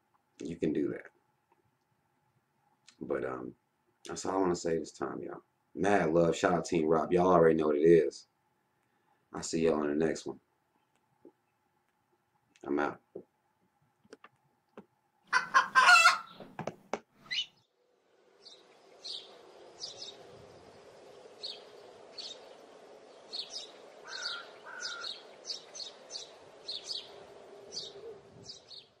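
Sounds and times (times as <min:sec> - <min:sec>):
birds chirping: 0:15.3 - 0:16.6, 0:17.2 - 0:29.0
low drone: 0:17.9 - 0:29.0.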